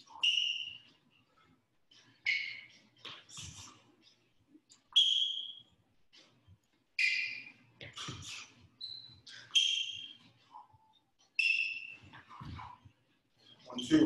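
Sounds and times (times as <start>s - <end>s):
sneakers squeaking on wooden floor: 0.0s - 1.1s, 1.9s - 3.8s, 4.8s - 6.3s, 7.0s - 12.8s.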